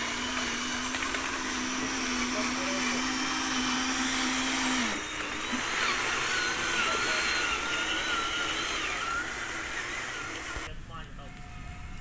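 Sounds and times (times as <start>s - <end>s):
electric motor low hum: 0.0s - 12.0s
electric motor wavering whine: 0.0s - 12.0s.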